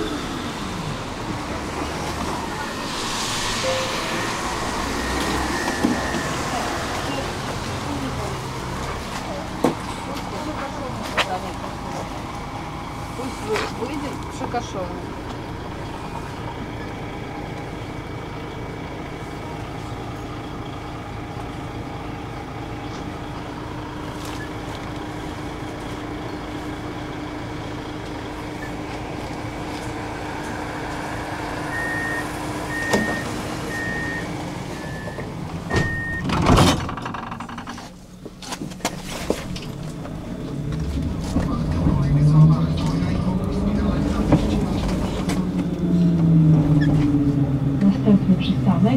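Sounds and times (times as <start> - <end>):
tram running: 0.0 - 48.9
short beeps: 3.6 - 6.6, 31.8 - 36.2.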